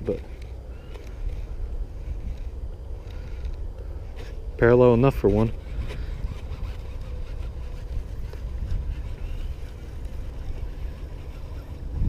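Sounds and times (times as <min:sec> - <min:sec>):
wind rumble on microphone: 0:00.0 - 0:12.0
fishing reel being cranked: 0:05.2 - 0:11.9.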